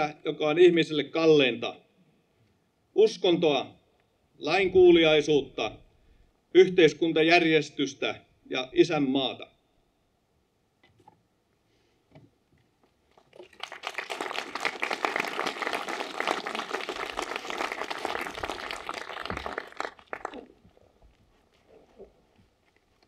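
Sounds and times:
audience applauding: 13.1 - 20.6.

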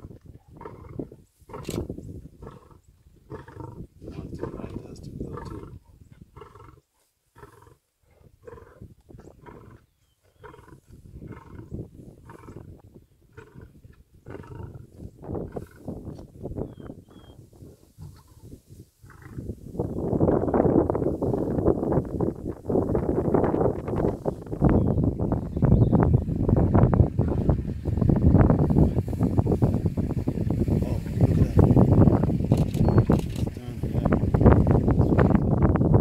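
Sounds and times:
lions growling: 0.6 - 15.9, 19.0 - 19.4.

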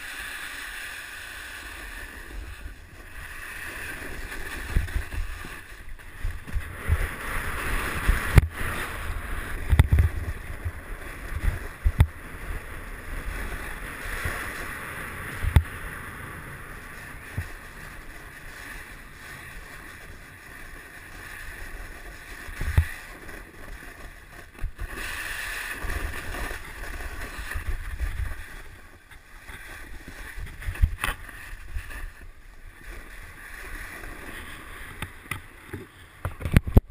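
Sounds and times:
snowboard hissing over snow: 0.0 - 36.2
board thumping on bumps: 4.2 - 9.0, 9.6 - 12.2.

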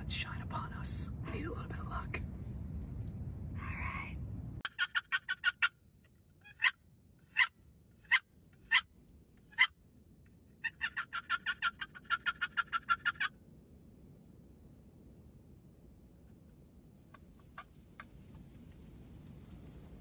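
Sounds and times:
box turkey call yelps: 4.6 - 9.8, 10.6 - 13.4, 17.1 - 18.1
turkey call clucks: 4.6 - 9.8, 10.6 - 13.4, 16.3 - 18.2.

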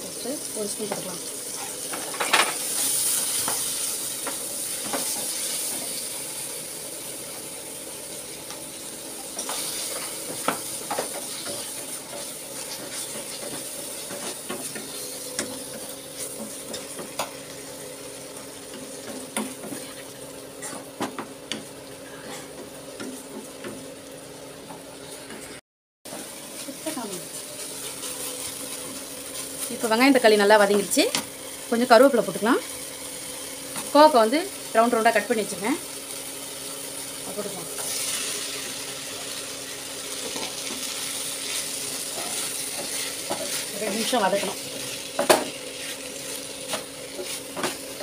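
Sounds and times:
vegetables sizzling in a pan: 0.0 - 48.0
spatula scraping and tapping pan: 9.4 - 17.4.

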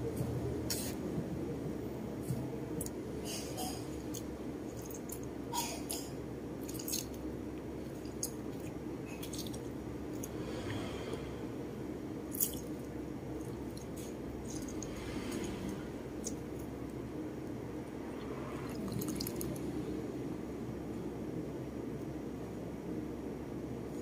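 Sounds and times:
low background hum: 0.0 - 24.0
wet squishing of limes: 6.6 - 10.4, 12.3 - 16.4.

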